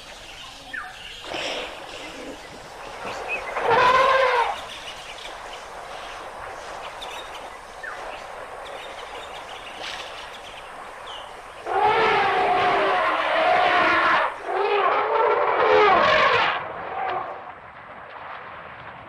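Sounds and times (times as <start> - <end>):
outdoor hiss: 0.0 - 14.6
elephant trumpeting: 3.6 - 4.7, 11.6 - 16.6.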